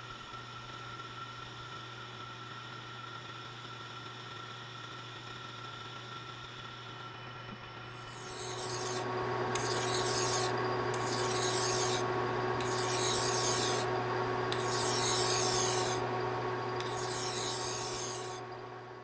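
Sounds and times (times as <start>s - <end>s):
hand file scraping metal: 8.0s - 16.2s, 16.8s - 18.5s
lathe humming: 8.0s - 19.0s.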